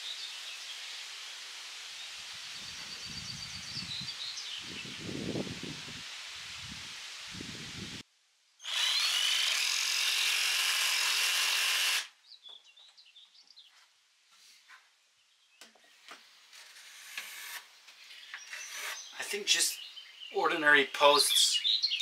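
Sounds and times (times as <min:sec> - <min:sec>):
jigsaw cutting wood: 0:08.6 - 0:12.1.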